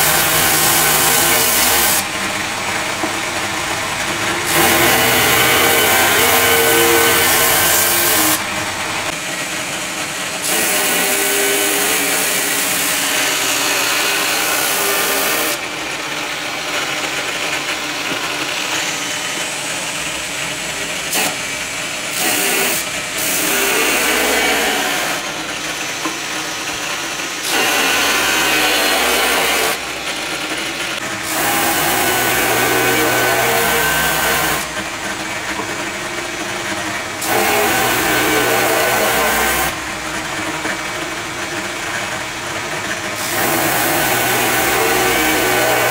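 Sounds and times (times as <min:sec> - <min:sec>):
angle grinder motor whine: 0:00.0 - 0:09.2
wood sanding hiss: 0:03.3 - 0:09.1.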